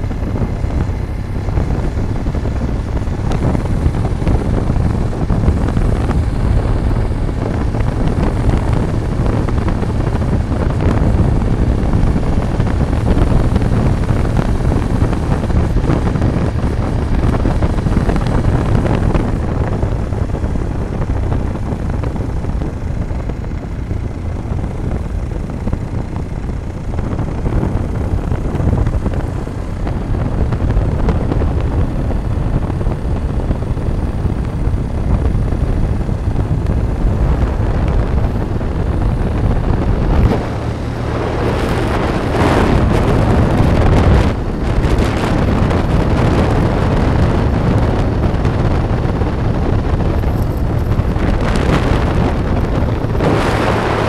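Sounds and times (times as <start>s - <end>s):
vehicle running on road: 0.0s - 54.0s
wind rushing over microphone: 0.0s - 54.0s.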